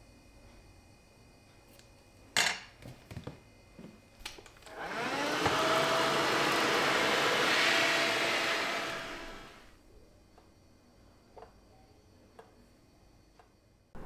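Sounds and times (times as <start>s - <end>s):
hair dryer blowing: 4.7s - 9.7s.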